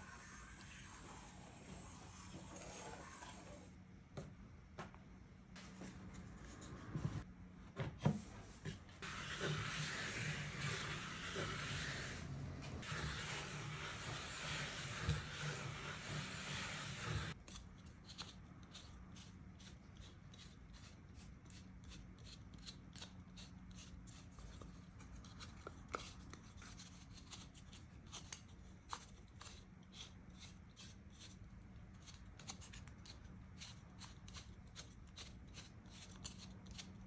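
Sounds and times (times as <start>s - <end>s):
trim router noise: 9.0s - 17.4s.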